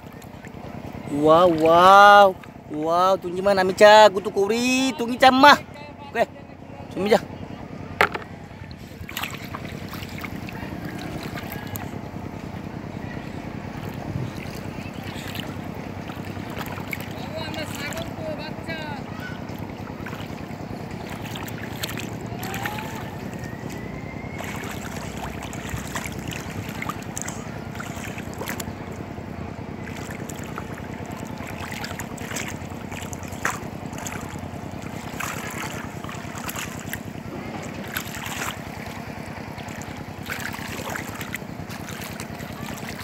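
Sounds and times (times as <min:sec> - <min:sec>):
hands splashing in muddy water: 0:08.0 - 0:18.8, 0:19.4 - 0:43.0.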